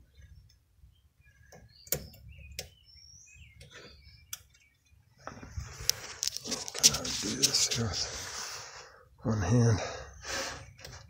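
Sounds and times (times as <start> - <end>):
faint bird chirps: 0.0 - 5.5.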